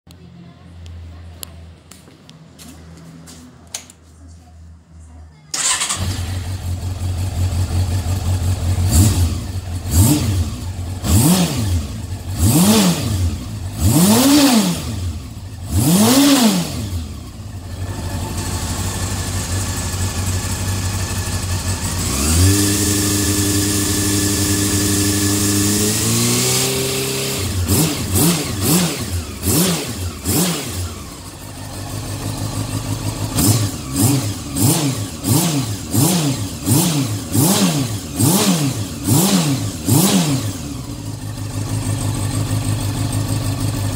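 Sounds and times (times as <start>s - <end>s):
motorcycle engine revving: 5.6s - 43.9s.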